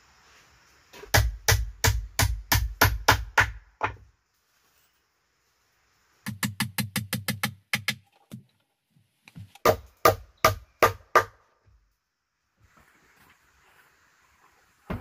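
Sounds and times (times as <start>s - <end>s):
hammer striking timber: 1.1s - 4.0s, 6.3s - 8.0s, 9.6s - 11.4s.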